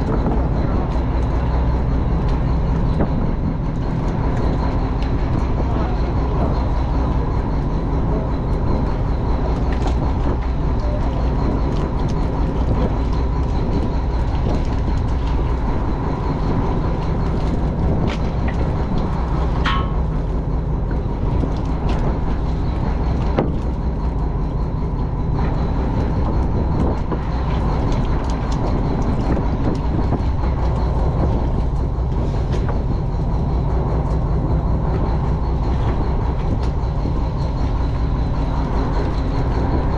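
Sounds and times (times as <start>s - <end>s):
boat engine drone: 0.0s - 39.9s
ringing metal clank: 19.6s - 20.1s.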